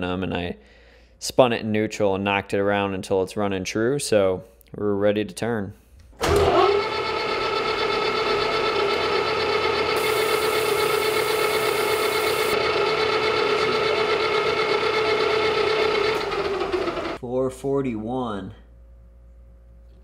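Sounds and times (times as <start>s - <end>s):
lathe running with gear whine: 6.3s - 17.2s
high hiss: 10.0s - 12.6s.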